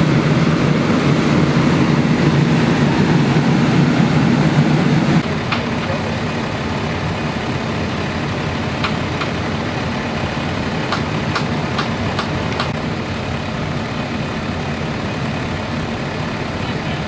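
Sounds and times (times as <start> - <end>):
vehicle engine idling: 0.0 - 17.0
sharp clicks: 10.9 - 12.8.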